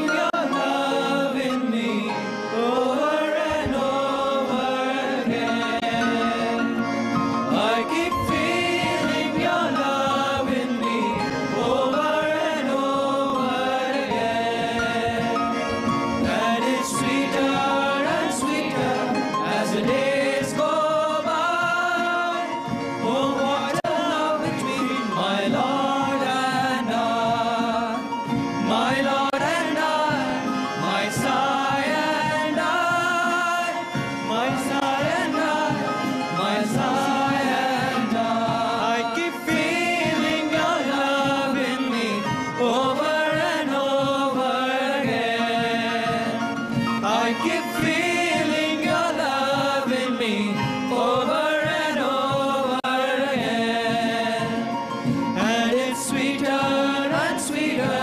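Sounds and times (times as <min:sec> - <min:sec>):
person singing devotional song: 0:00.0 - 0:58.0
instrumental accompaniment with drone: 0:00.1 - 0:58.0.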